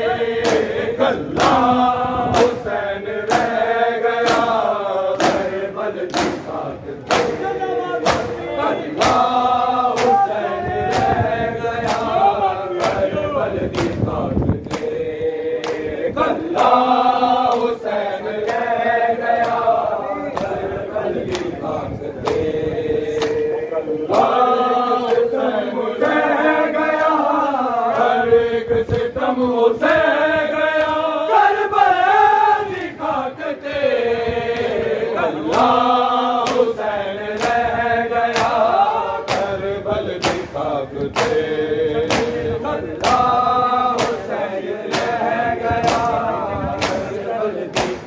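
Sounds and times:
men chanting in unison: 0.0s - 48.0s
hands slapping bare chests: 5.2s - 5.5s, 6.1s - 6.4s, 7.1s - 7.4s, 8.0s - 8.4s, 9.0s - 11.2s, 11.8s - 12.2s, 13.7s - 14.0s, 14.6s - 15.0s, 36.4s - 36.7s, 38.3s - 39.5s, 40.2s - 42.4s, 43.0s - 43.4s, 44.0s - 44.3s, 44.9s - 45.2s, 45.8s - 46.2s, 46.8s - 47.1s, 47.7s - 48.0s.

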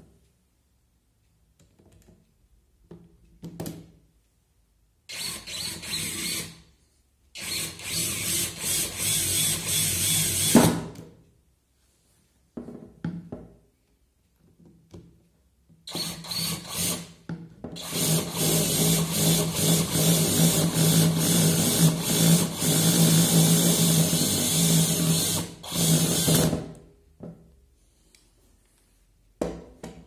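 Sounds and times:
cordless drill whine: 15.9s - 17.0s, 17.8s - 26.5s.

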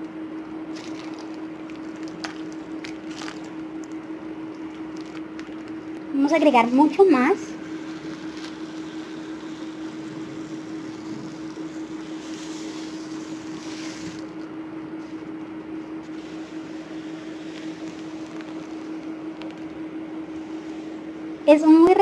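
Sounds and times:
steady low hum: 0.0s - 22.0s
foam beads pouring into bowl: 0.7s - 3.6s, 7.6s - 14.3s
plastic bag crinkling: 0.7s - 6.0s, 7.6s - 14.4s, 17.4s - 19.7s.

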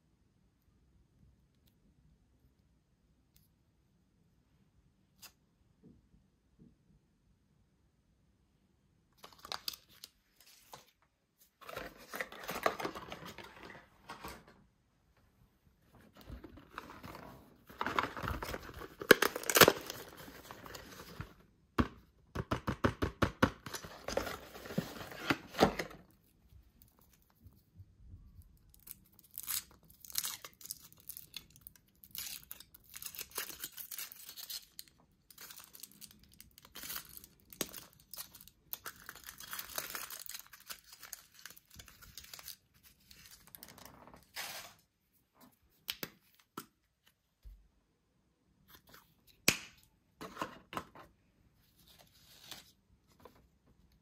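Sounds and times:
packaging torn and crinkled: 17.8s - 20.4s, 28.7s - 43.7s.

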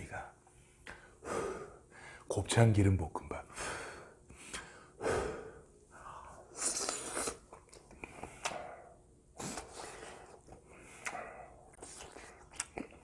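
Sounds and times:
breathing: 0.5s - 2.3s, 3.5s - 6.4s, 8.0s - 11.6s
chewing: 9.4s - 13.0s.

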